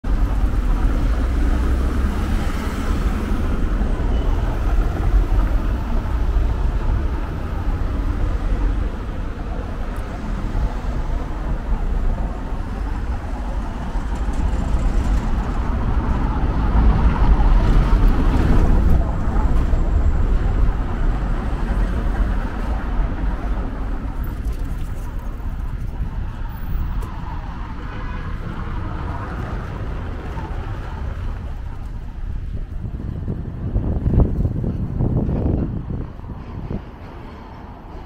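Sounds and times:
city street traffic rumble: 0:00.0 - 0:38.0.

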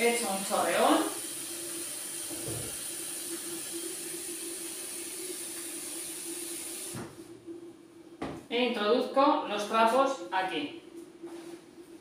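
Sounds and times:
tap water running into basin: 0:00.0 - 0:07.2.

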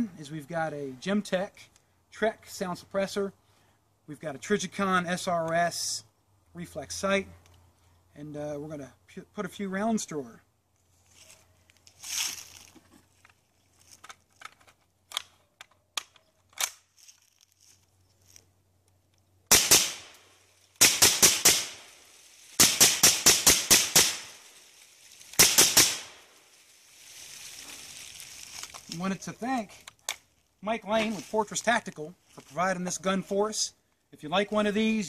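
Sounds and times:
rifle handling clicks: 0:14.0 - 0:16.8
suppressed rifle shots: 0:19.5 - 0:20.2, 0:20.8 - 0:21.9, 0:22.6 - 0:24.4, 0:25.4 - 0:26.2.

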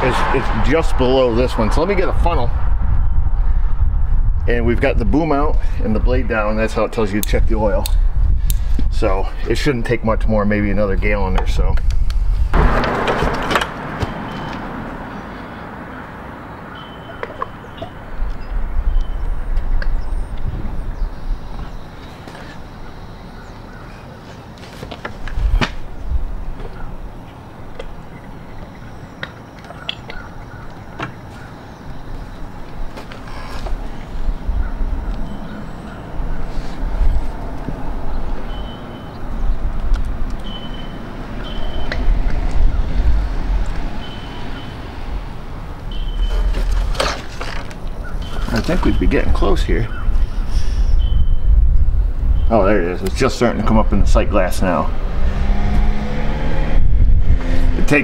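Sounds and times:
low rumble: 0:00.0 - 0:05.1
low surging outdoor rumble: 0:00.0 - 0:16.8, 0:31.6 - 0:58.0
sharp knock: 0:12.5 - 0:14.8.

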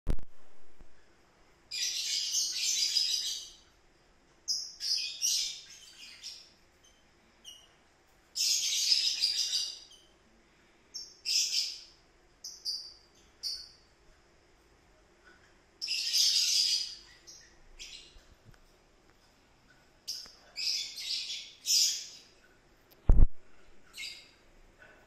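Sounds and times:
bird chirping: 0:01.7 - 0:03.8, 0:04.4 - 0:10.2, 0:10.9 - 0:14.0, 0:15.3 - 0:18.5, 0:19.7 - 0:23.2, 0:23.8 - 0:24.4.

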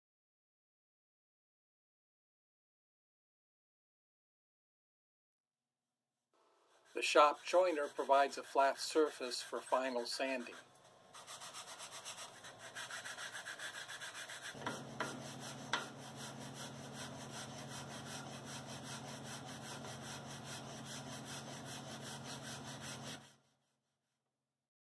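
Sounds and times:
wood rasping on sandpaper: 0:06.7 - 0:23.7
sharp knocks: 0:14.6 - 0:16.0.

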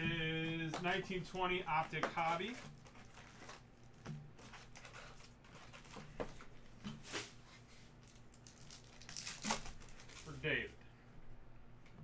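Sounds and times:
foil packs crinkling: 0:00.6 - 0:06.5, 0:08.0 - 0:10.6.

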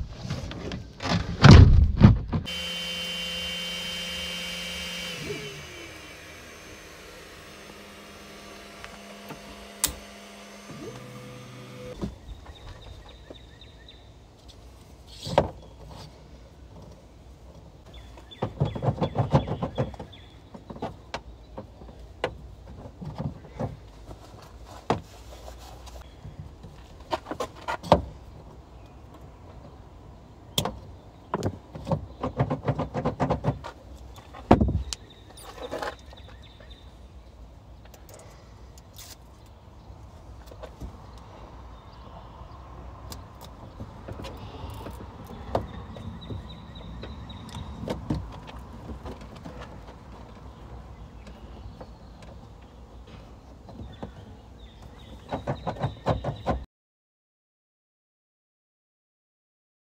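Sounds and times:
stepper motors whining: 0:02.5 - 0:12.0.

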